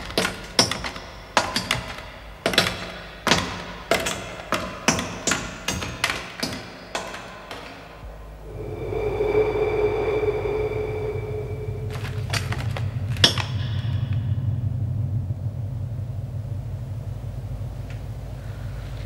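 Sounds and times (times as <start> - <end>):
steady electronic hum: 8.0 - 19.0.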